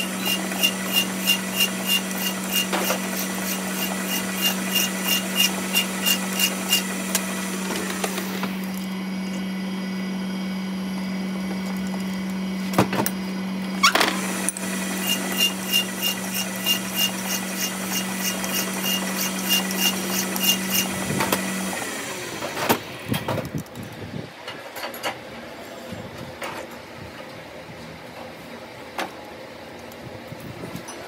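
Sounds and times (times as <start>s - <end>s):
file scraping metal: 0.0s - 7.0s, 14.9s - 21.4s
metal lathe humming: 0.0s - 9.0s, 13.9s - 22.5s.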